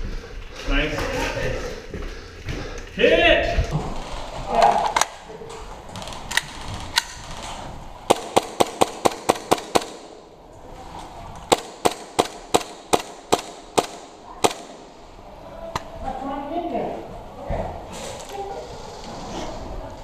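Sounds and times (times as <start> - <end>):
airsoft pistol shots: 8.1 - 10.2, 11.5 - 14.8.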